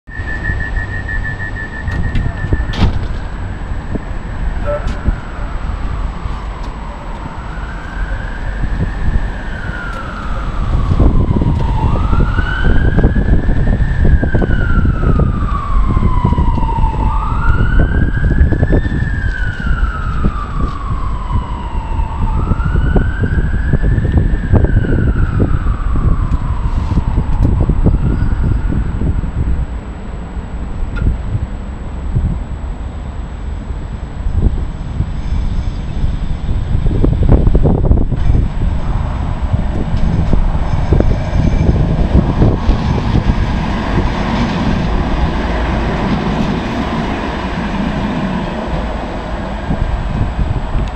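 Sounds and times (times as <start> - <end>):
siren wailing: 0.1 - 29.5, 36.2 - 50.9
low traffic rumble: 0.1 - 50.9
rapid high door warning beeps: 0.3 - 2.9.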